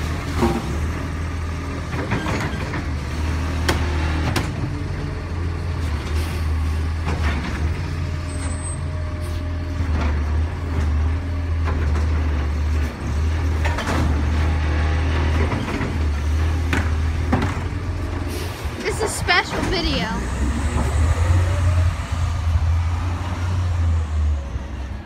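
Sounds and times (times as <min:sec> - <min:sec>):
truck engine running: 0:00.0 - 0:25.0
cart and arm clanking: 0:15.2 - 0:21.3.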